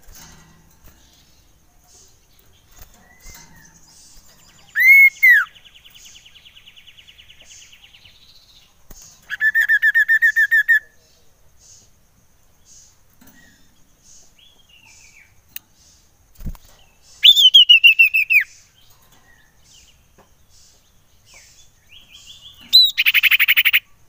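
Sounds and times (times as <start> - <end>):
faint bird chirps: 0.0 - 24.0
rapid repeated bird notes: 0.0 - 24.0
bird trilling: 4.5 - 5.6, 9.3 - 10.9, 17.2 - 18.5, 22.4 - 23.9
bird whistling: 4.7 - 5.6, 9.3 - 10.8, 17.2 - 18.5, 22.6 - 23.9.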